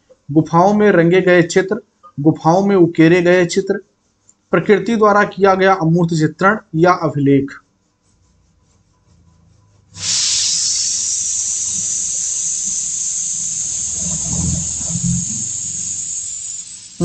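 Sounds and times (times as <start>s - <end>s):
loud steady hiss: 9.9s - 17.0s.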